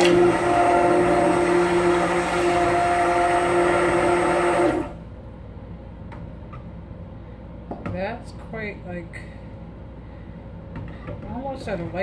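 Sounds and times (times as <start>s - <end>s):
stick blender running: 0.0s - 5.0s.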